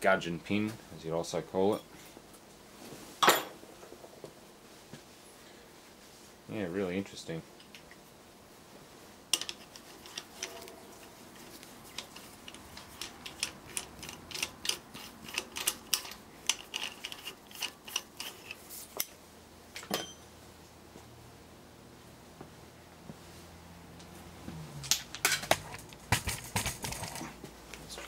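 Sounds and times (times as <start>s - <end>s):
socket wrench clicking: 12.0s - 18.6s.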